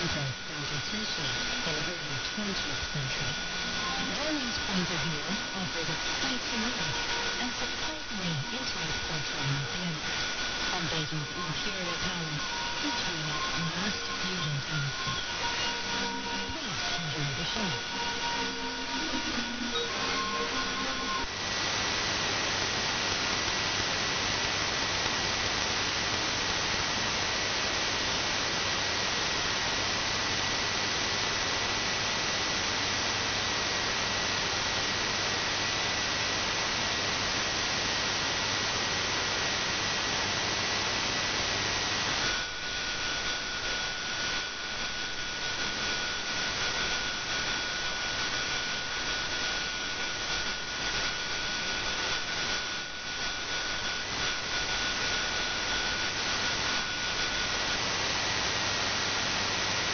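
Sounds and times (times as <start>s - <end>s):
low hum: 0.0s - 23.4s
radio hiss: 0.0s - 59.9s.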